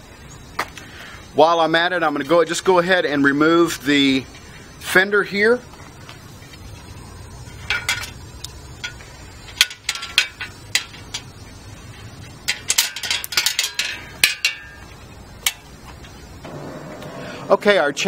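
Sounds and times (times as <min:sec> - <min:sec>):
metal clinks and rattles: 0:12.4 - 0:15.6.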